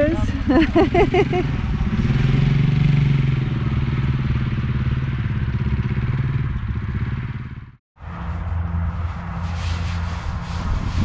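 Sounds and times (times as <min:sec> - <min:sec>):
small motorcycle engine: 0:00.0 - 0:07.8.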